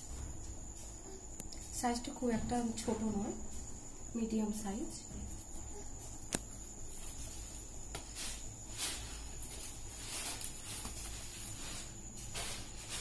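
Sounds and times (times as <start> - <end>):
faint high whine: 0.0 - 13.0
steady background hum: 0.0 - 13.0.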